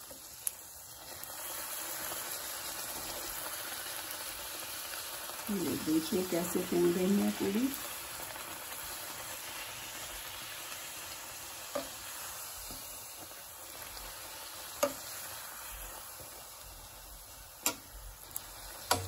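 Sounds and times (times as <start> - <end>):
deep-frying sizzle: 0.0 - 19.0.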